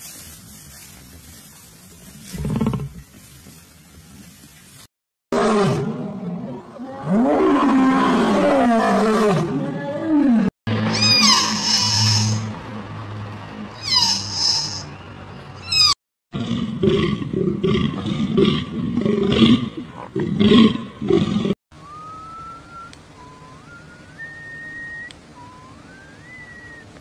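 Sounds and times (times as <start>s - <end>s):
low pulsing animal calls: 9.8s - 12.6s, 13.7s - 15.0s
falling animal call: 10.8s - 12.5s, 13.8s - 14.9s
rising whistles: 21.7s - 27.0s.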